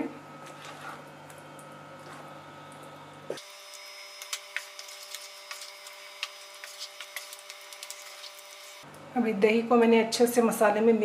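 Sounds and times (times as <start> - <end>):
wooden spatula scraping pan: 0.6 - 1.0, 4.5 - 8.7.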